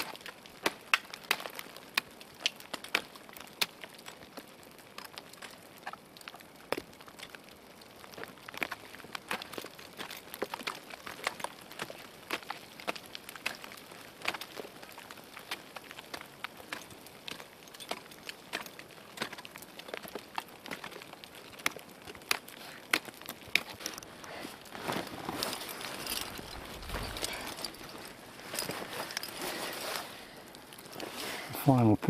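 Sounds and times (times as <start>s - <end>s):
crunching snow and ice: 0.0s - 32.0s.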